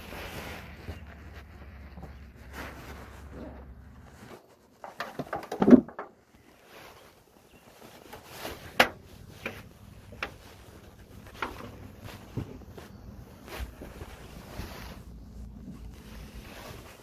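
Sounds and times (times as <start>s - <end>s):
wooden hive parts knocking and scraping: 1.9s - 14.0s.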